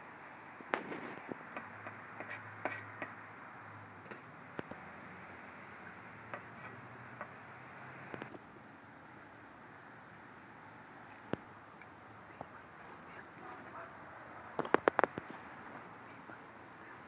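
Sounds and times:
steady outdoor hiss: 0.0 - 17.0
faint scraping: 0.8 - 3.1, 6.3 - 8.3.

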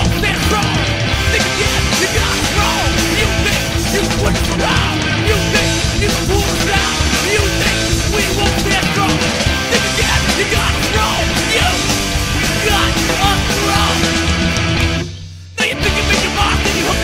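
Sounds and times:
punk rock band playing: 0.0 - 17.0.

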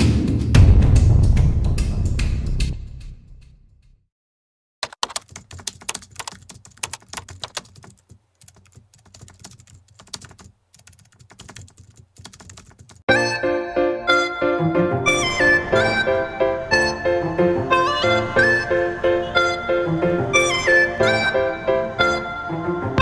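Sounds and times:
keyboard typing clicks: 4.8 - 13.0
melodic music: 13.1 - 23.0.

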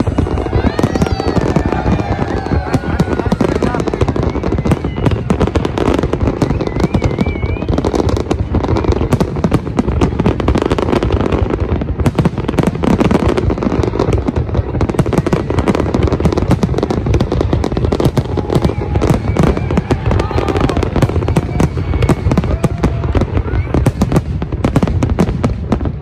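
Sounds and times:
fireworks bursts and crackling: 0.0 - 26.0.

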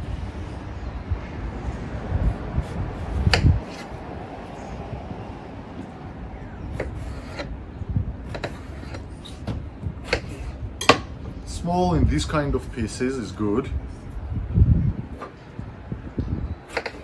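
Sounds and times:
knife scraping through eggplant: 6.8 - 7.5, 8.3 - 9.4, 10.0 - 10.6.

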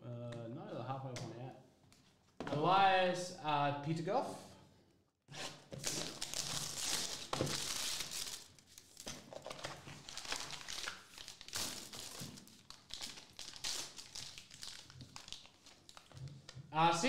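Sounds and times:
plastic wrap crinkling: 5.6 - 16.7.

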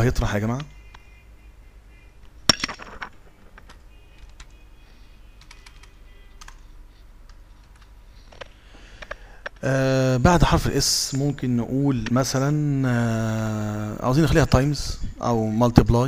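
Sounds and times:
computer keyboard keys clicking: 3.6 - 4.6, 5.4 - 8.4.

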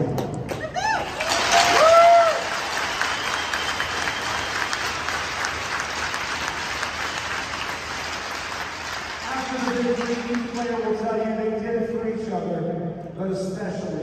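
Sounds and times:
crowd applauding: 0.5 - 11.0.

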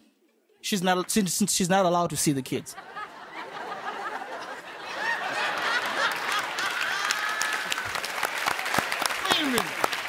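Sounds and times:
studio audience laughing: 2.7 - 7.9.

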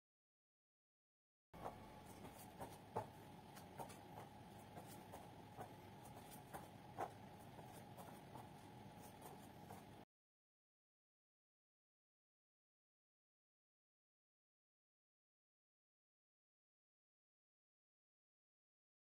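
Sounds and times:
steady low hum: 1.6 - 10.1.

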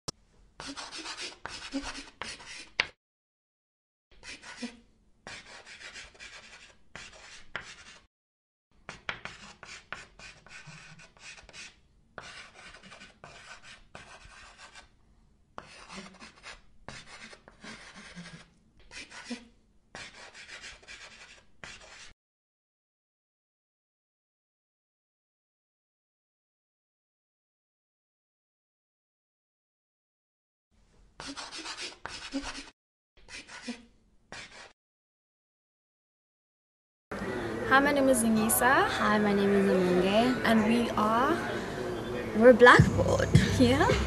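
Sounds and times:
chalk scratching on blackboard: 0.6 - 3.0, 4.2 - 8.1, 8.9 - 14.9, 15.6 - 22.1, 31.2 - 34.8.

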